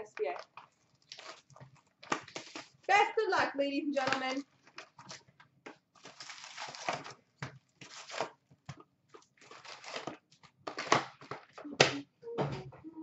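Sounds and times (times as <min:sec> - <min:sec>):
card packs rustling and crinkling: 0:00.1 - 0:02.9, 0:04.0 - 0:12.0
tearing crackle: 0:00.3 - 0:02.9, 0:06.0 - 0:08.4, 0:09.1 - 0:11.5.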